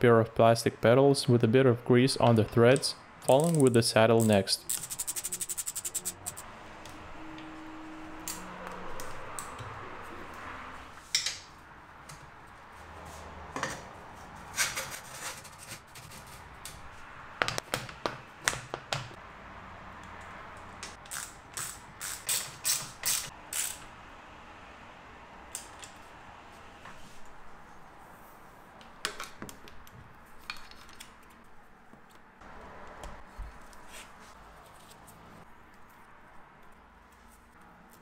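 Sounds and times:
ratchet wrench clicking: 4.7 - 6.4, 21.0 - 23.8.

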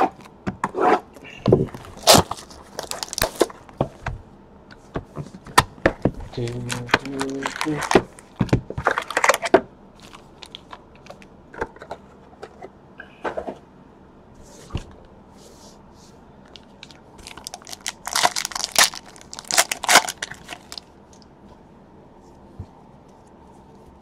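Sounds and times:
foil pack tearing and crinkling: 1.8 - 3.6, 6.3 - 8.2, 17.2 - 20.8.

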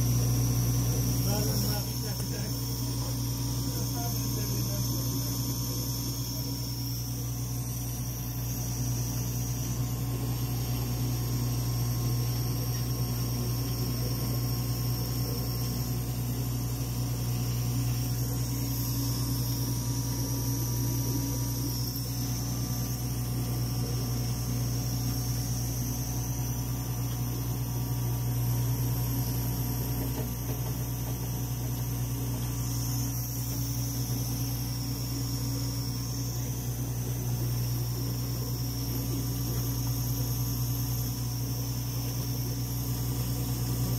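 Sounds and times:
low electrical hum: 0.0 - 43.9.

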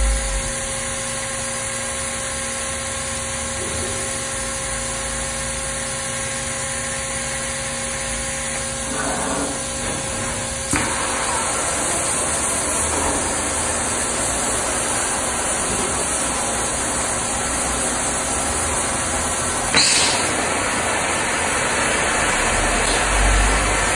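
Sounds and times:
machine humming: 0.0 - 1.5
cutting torch hissing: 8.0 - 23.9.

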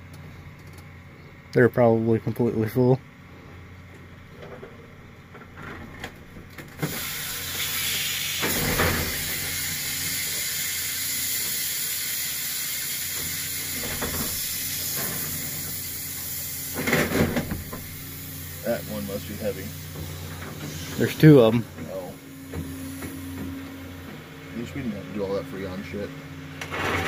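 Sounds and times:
refrigerant hissing out: 6.8 - 23.9.

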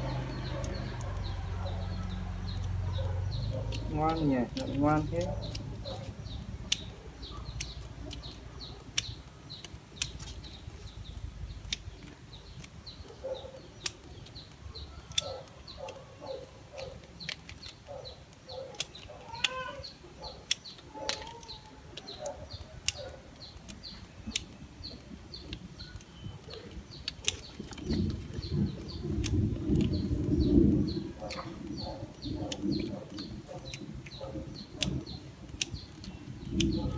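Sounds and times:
bird chirping: 0.0 - 36.9
branches rustling: 0.0 - 36.9
pruning scissors snipping: 0.1 - 13.0, 16.8 - 25.0.

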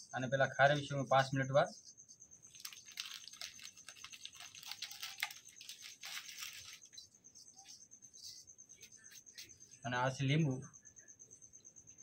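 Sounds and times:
gritty rustles of salt rubbing: 2.4 - 9.6.

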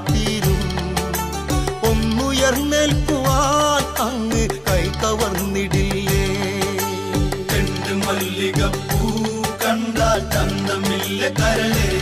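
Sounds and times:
folk song melody: 0.0 - 12.0
steady drum beat: 0.0 - 12.0.

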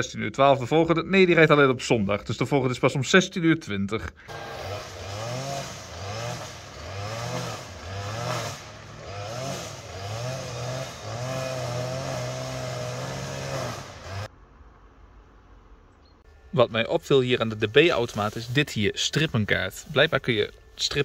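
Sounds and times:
vehicle engine revving: 4.3 - 14.3.

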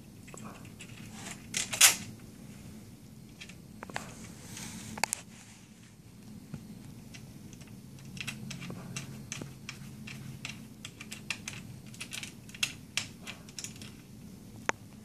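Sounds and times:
small plastic and metal parts clicking: 7.1 - 14.1.

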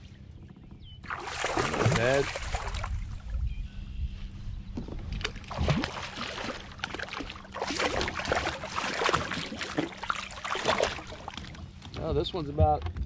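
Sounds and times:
fish thrashing water splashes: 1.1 - 3.0, 5.2 - 11.8.

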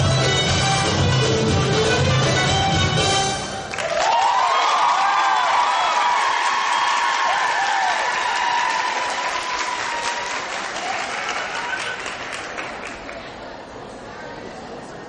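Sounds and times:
people cheering: 3.6 - 13.1
audience applauding: 3.6 - 13.2.

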